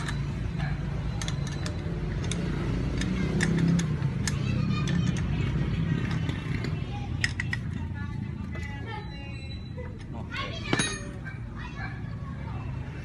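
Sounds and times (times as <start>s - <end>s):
tools clinking on metal: 0.0s - 7.9s, 10.7s - 11.3s.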